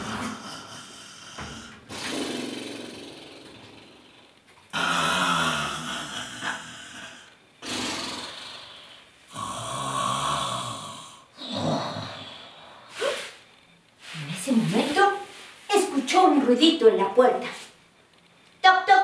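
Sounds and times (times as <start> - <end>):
woman mock snoring: 0.0 - 4.1, 4.7 - 13.3.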